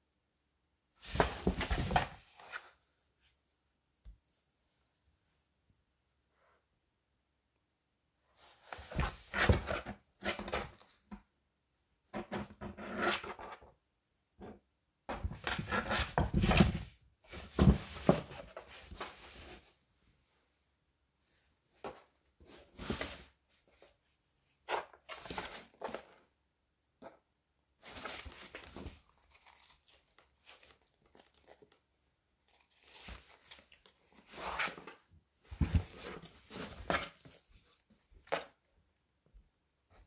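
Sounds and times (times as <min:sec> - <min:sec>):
cat scraping cardboard box: 0:08.5 - 0:10.9, 0:12.2 - 0:13.7, 0:15.1 - 0:19.7, 0:32.7 - 0:38.4.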